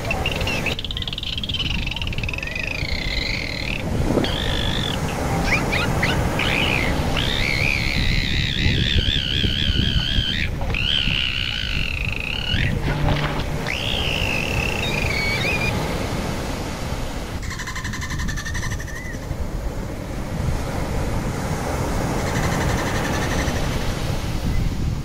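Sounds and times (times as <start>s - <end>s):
dolphins whistling underwater: 0.0s - 16.6s
low rumble of water noise: 2.4s - 17.5s.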